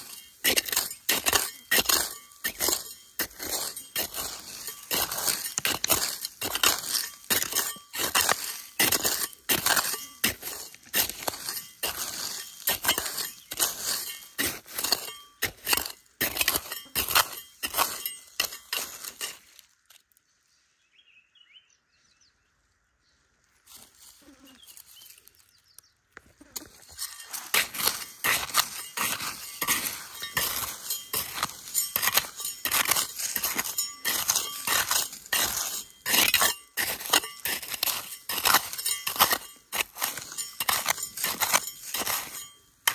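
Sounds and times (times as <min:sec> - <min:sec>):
blade clinking on stones: 0:00.0 - 0:20.1, 0:26.4 - 0:42.9
trowel scraping gravelly soil: 0:00.0 - 0:20.2, 0:23.5 - 0:42.9.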